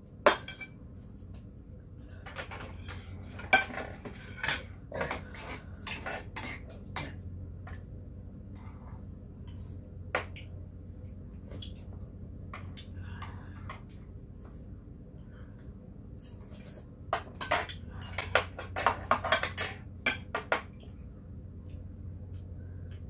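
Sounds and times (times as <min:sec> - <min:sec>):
spoons clinking against bowls: 0:16.2 - 0:20.7.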